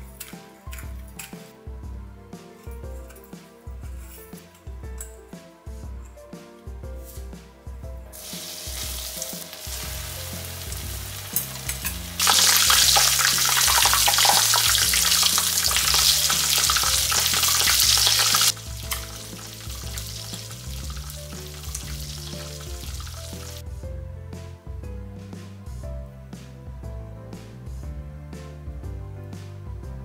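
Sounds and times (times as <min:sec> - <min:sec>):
soft background music: 0:00.0 - 0:30.0
food deep-frying in oil: 0:08.2 - 0:23.6.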